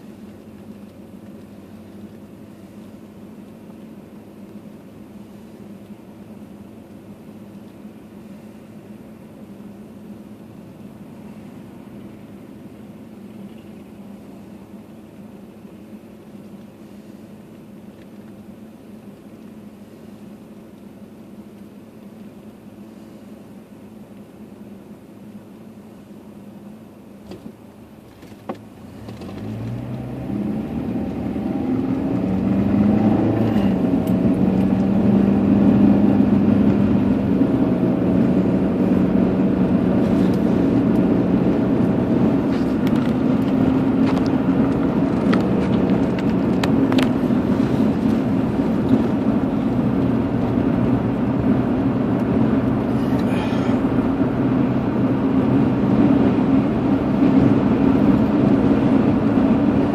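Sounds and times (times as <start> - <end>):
car engine accelerating: 27.4 - 59.9.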